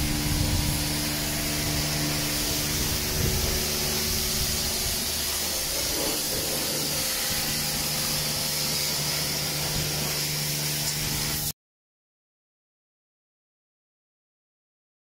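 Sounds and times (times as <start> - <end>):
low even hum: 0.0 - 9.0
pressure washer spray hissing: 0.0 - 11.5.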